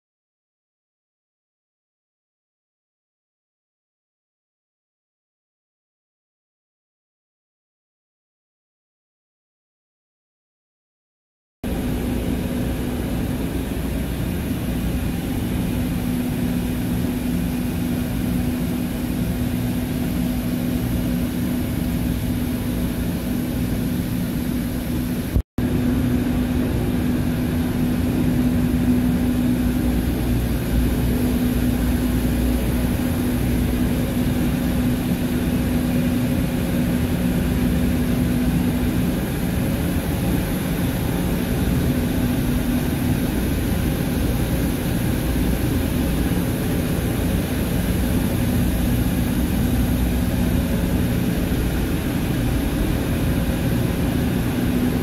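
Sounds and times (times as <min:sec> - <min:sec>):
diesel engine low rumble and hum: 0:11.6 - 0:55.0.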